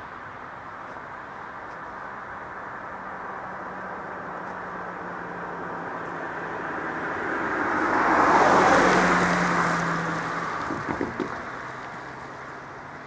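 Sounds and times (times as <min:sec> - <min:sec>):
car driving past: 0:03.2 - 0:13.0.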